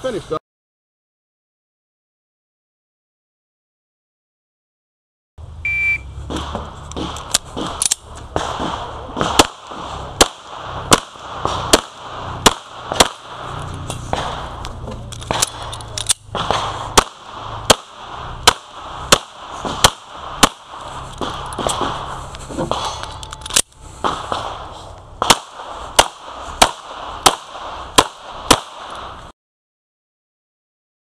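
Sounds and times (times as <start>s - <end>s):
shot timer beep: 5.6s - 6.1s
pistol shots: 6.2s - 23.2s, 24.0s - 29.2s.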